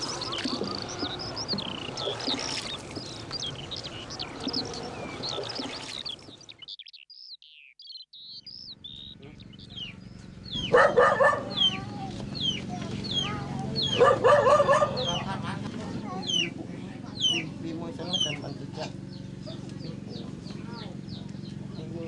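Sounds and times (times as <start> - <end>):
small birds chirping: 0.0 - 22.0
low background hum: 8.3 - 22.0.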